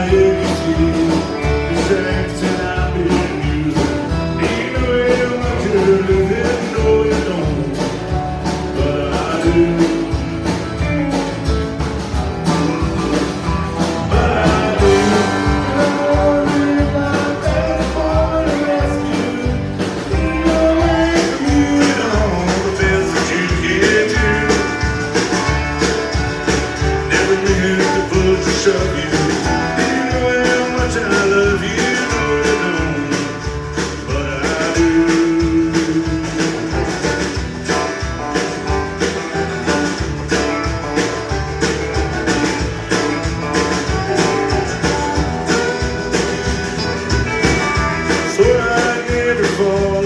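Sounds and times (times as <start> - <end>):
person singing: 0.0 - 10.8, 13.8 - 25.5, 26.5 - 37.9, 47.7 - 50.0
acoustic and electric guitars: 0.0 - 50.0
bass: 0.0 - 50.0
drums: 0.0 - 50.0
fiddle: 0.0 - 50.0.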